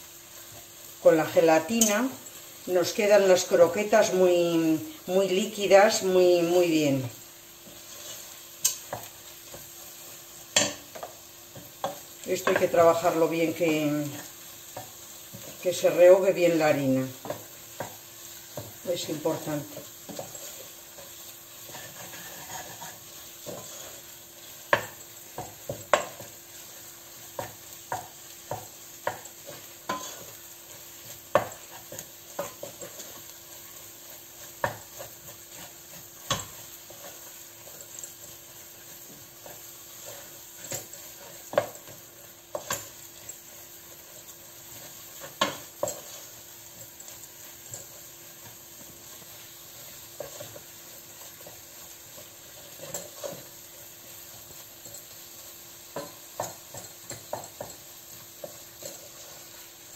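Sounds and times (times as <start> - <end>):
faint steady sizzle: 0.0 - 59.9
wooden spoon scraping metal pot: 17.1 - 26.3, 27.2 - 30.4.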